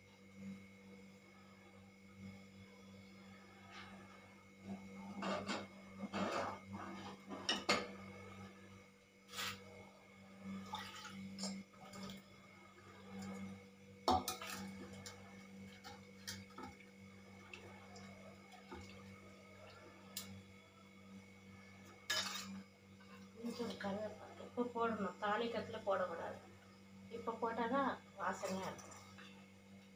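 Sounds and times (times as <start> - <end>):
steady low hum: 0.0 - 29.9
metal ladle scraping a pot: 9.3 - 9.6.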